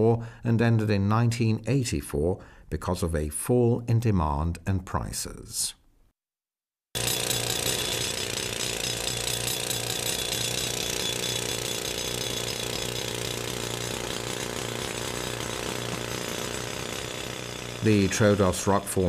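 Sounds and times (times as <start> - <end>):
machinery running: 13.9 - 19.0.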